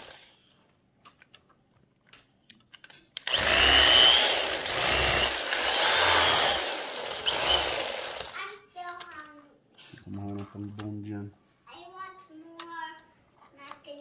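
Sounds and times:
electric carving knife whining: 0:03.2 - 0:08.4.

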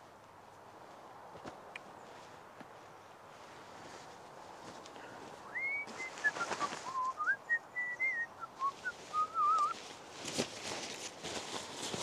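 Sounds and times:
person whistling a tune: 0:05.5 - 0:09.8
fabric rustling: 0:05.9 - 0:07.1, 0:08.7 - 0:12.0.

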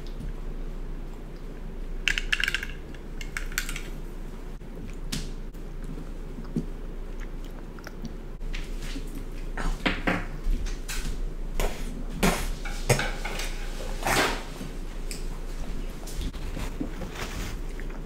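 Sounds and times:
chewing honeycomb: 0:04.6 - 0:09.8, 0:16.0 - 0:18.0.

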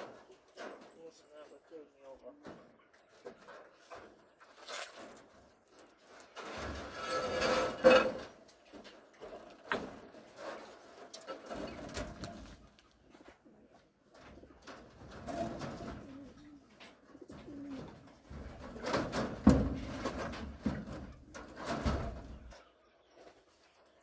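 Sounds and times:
rustling: 0:03.0 - 0:23.9
dove cooing: 0:15.2 - 0:18.8.

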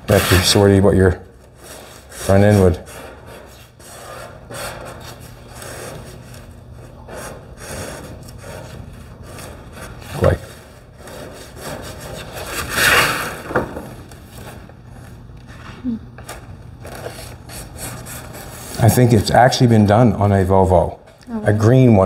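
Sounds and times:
pencil scratching on paper: 0:01.6 - 0:12.9, 0:17.0 - 0:19.2.

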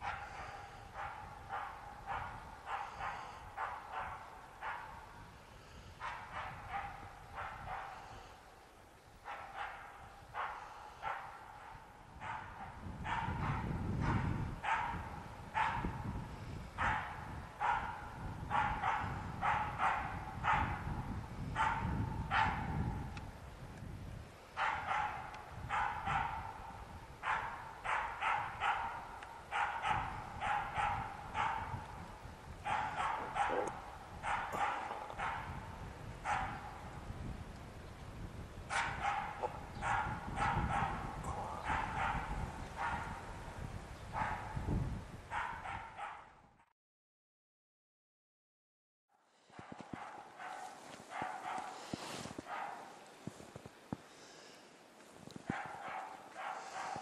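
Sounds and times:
dog barking: 0:00.0 - 0:05.2, 0:06.0 - 0:08.3, 0:09.2 - 0:16.0, 0:16.8 - 0:21.0, 0:21.6 - 0:23.0, 0:24.6 - 0:32.0, 0:32.6 - 0:36.9, 0:38.7 - 0:43.3, 0:44.1 - 0:44.7, 0:45.3 - 0:46.4, 0:49.5 - 0:53.0, 0:55.5 - 0:57.0.

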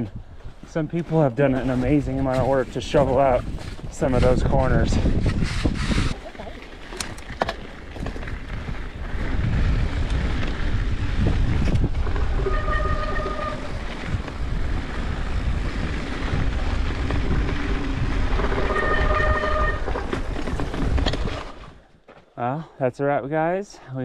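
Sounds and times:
wind buffeting microphone: 0:00.0 - 0:21.8
mountain bike riding rumble: 0:00.1 - 0:22.2
high squeal: 0:18.6 - 0:19.9.

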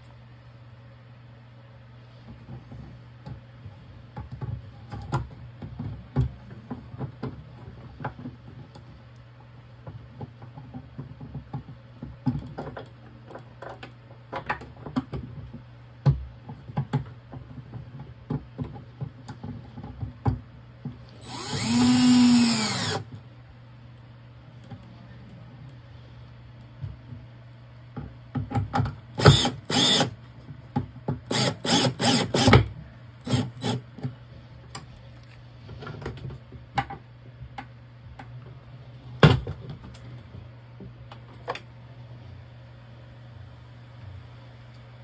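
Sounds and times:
cordless drill running: 0:21.2 - 0:23.0, 0:29.2 - 0:30.1, 0:31.3 - 0:32.6, 0:33.2 - 0:33.8.

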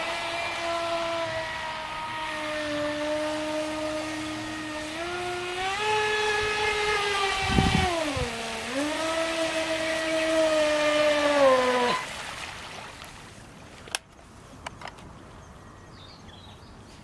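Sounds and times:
electric motor whining: 0:00.0 - 0:12.1.

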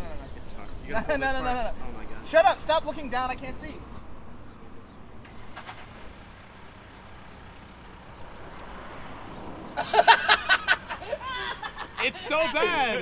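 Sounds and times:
traffic noise: 0:00.0 - 0:13.0
vehicle passing: 0:03.0 - 0:13.0
man laughing loudly: 0:09.8 - 0:13.0.

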